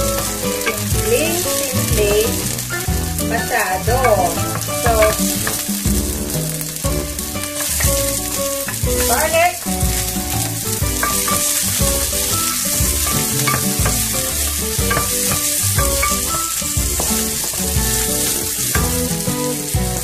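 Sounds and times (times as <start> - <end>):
onion and garlic sizzling in oil: 0.0 - 20.0
wooden spatula stirring in pan: 0.0 - 20.0.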